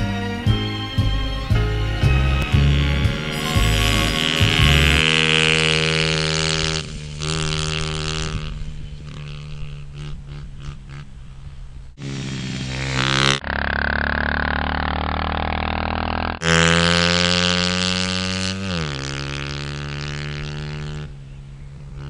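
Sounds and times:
small engines droning: 0.0s - 22.0s.

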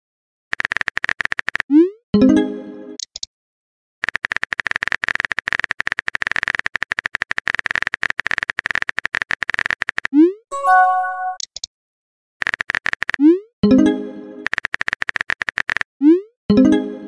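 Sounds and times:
keyboard typing clicks: 4.1s - 11.7s, 14.4s - 15.8s.

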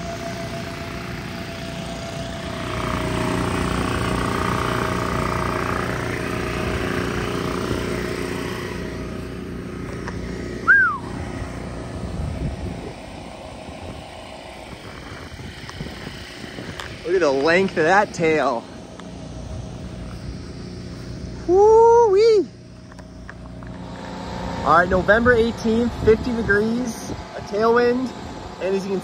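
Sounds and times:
electric blower fans: 0.0s - 29.0s
generator running: 0.0s - 29.0s
whistle-like falling note: 10.6s - 11.2s.

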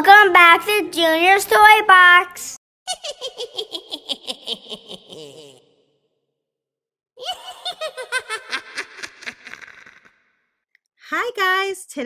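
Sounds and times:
high-pitched laughter: 2.9s - 5.8s, 7.2s - 10.1s.

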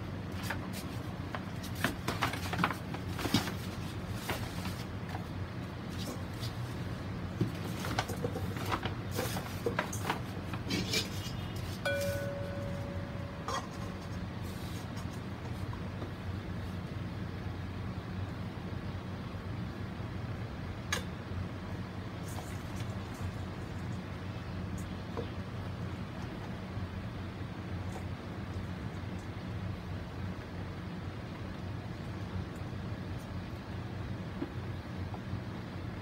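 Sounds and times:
steady low hum: 0.0s - 36.0s
steady tone: 11.8s - 14.3s.

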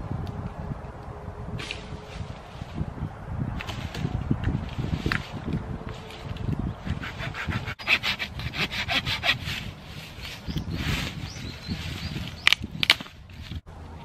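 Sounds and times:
hand saw cutting wood: 6.8s - 10.5s.

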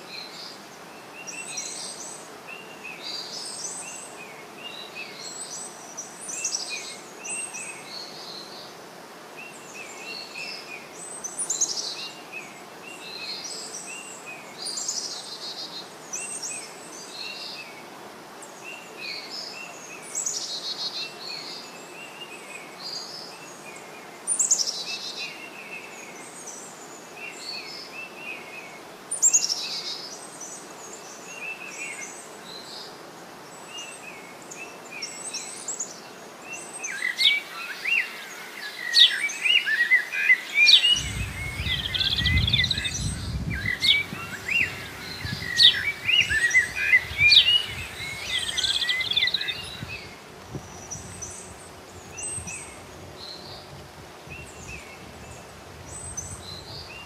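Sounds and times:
songbirds chirping: 0.0s - 57.0s
steady background hiss: 0.0s - 57.0s
bird calls sweeping downward: 40.4s - 50.1s.

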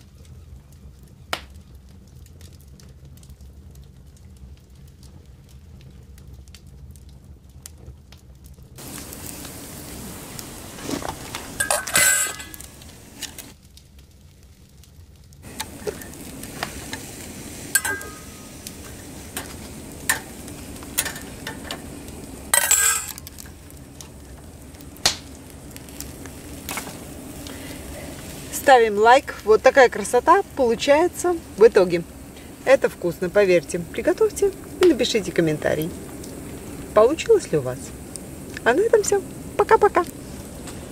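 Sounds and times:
mushrooms sizzling: 8.7s - 40.9s
metal utensils clinking: 11.5s - 12.8s, 17.7s - 21.9s, 22.5s - 23.5s.

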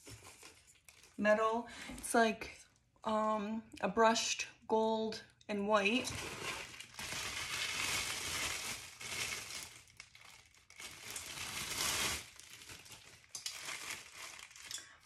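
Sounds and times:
plastic wrapping crinkling: 0.0s - 1.2s, 5.9s - 15.0s.

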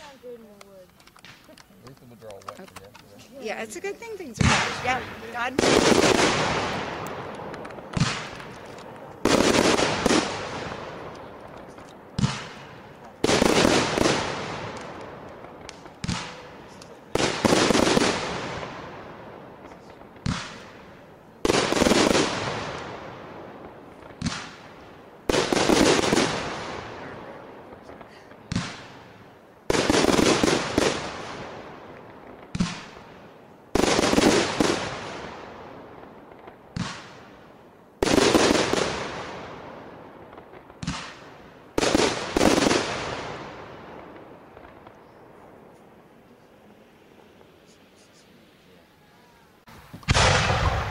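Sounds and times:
firework bang: 4.2s - 11.4s, 49.7s - 50.9s.

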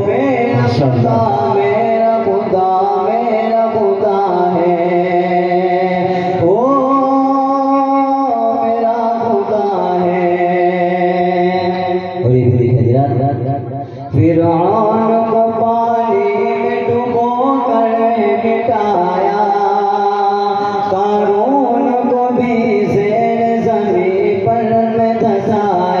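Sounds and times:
man singing devotional hymn: 0.0s - 26.0s.

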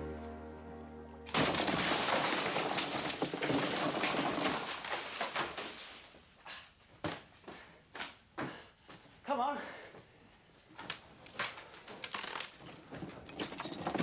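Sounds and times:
debris falling clatter: 1.3s - 6.3s, 13.2s - 14.0s.

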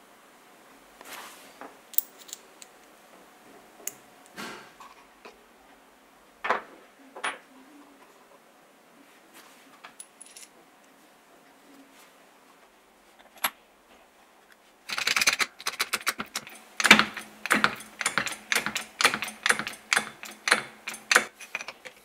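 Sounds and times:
small metal parts clinking: 2.0s - 2.7s, 10.0s - 10.5s, 14.9s - 22.0s.

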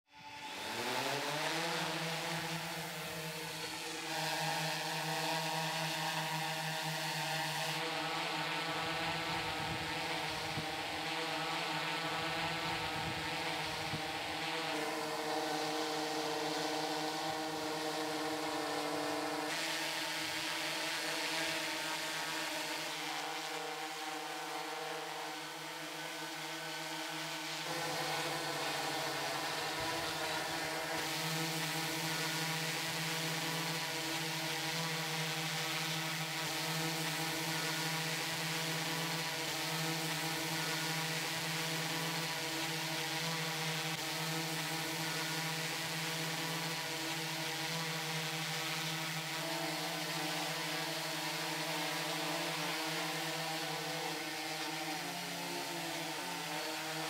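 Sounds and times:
drone rotors buzzing: 0.2s - 57.0s.

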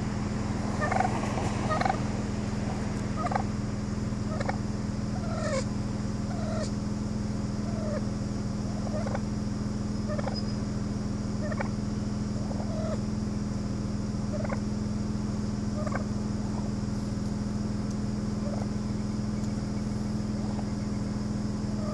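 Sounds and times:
car engine idling: 0.0s - 21.9s
wild turkeys calling: 0.7s - 2.3s, 2.9s - 6.7s, 7.6s - 10.7s, 11.4s - 13.1s, 14.2s - 14.7s, 15.7s - 21.9s.

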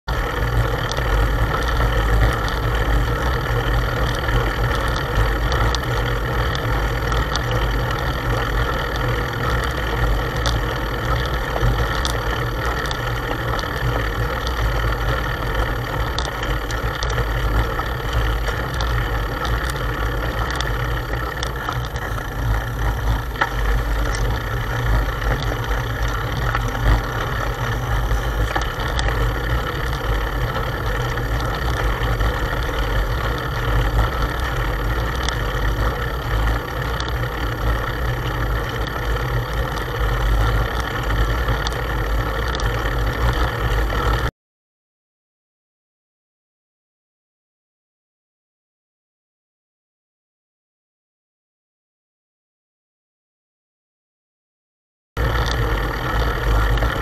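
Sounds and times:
road rumble: 0.0s - 44.2s
small clicks: 0.1s - 44.3s, 55.2s - 57.0s.

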